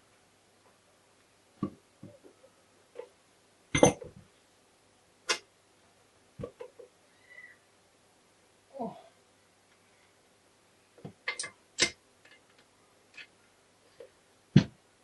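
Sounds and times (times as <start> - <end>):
metal parts knocking and clicking: 11.2 - 13.3.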